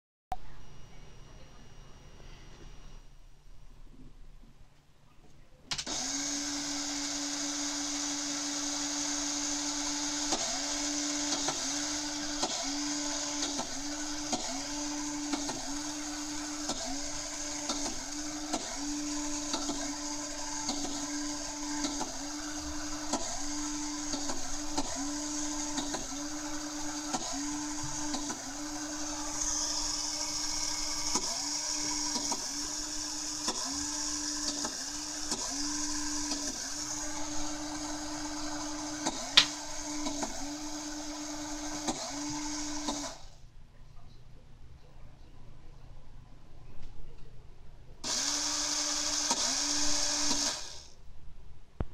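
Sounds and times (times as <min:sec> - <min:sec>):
small electric motors whining: 0:05.7 - 0:43.4, 0:48.0 - 0:50.9.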